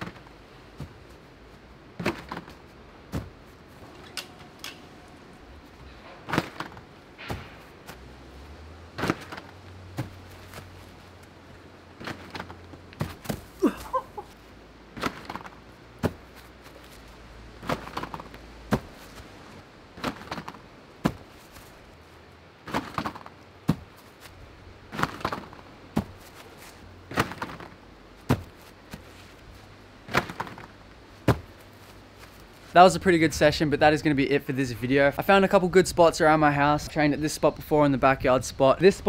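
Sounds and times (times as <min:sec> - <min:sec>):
trampoline bounces and landings: 0:00.0 - 0:22.0, 0:22.6 - 0:29.4, 0:30.0 - 0:32.7.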